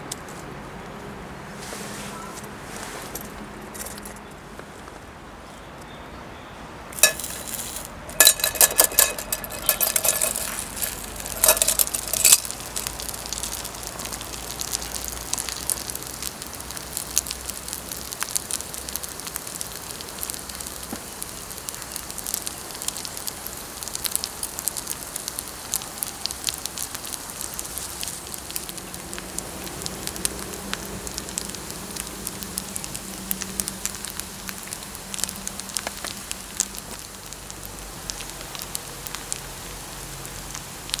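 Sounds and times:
metal clanks on pan: 7.0s - 12.6s
rice sizzling on hot pan: 7.0s - 41.0s.

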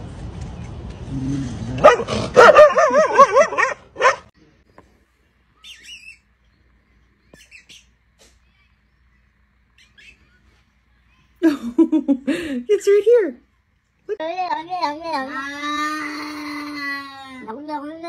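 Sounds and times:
dog barking and howling: 1.8s - 4.3s
faint high chirps: 5.5s - 11.4s.

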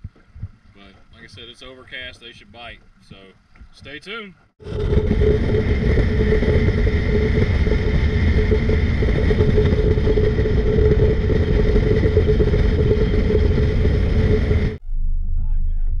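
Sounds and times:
outboard motor running: 4.6s - 14.8s
wind buffeting microphone: 4.6s - 14.8s.

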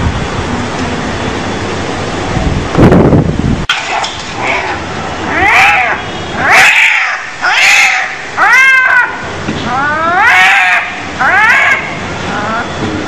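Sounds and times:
cat meowing: 5.3s - 11.8s.

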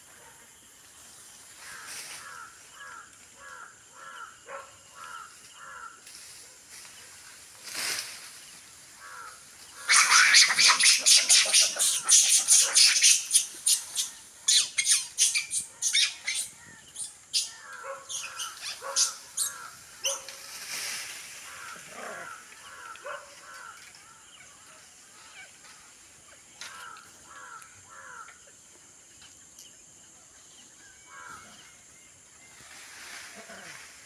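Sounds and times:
short repeated animal calls: 9.0s - 16.6s
high animal chirps: 9.8s - 20.2s.

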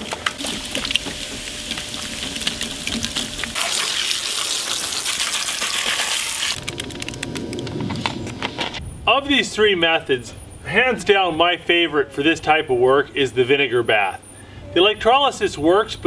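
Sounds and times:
small splashes: 0.0s - 6.6s
cola fizzing and foaming: 0.0s - 6.8s.

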